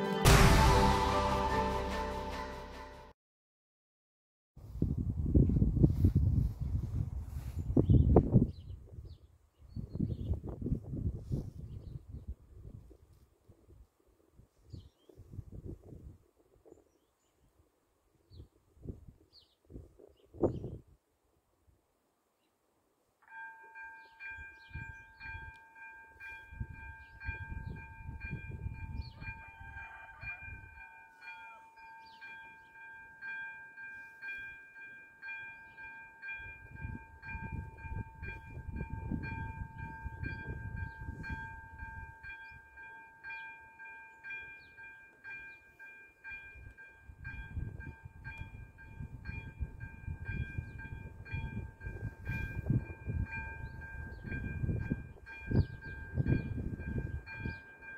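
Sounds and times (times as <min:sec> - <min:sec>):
level crossing warning bell: 0:23.2 - 0:57.9.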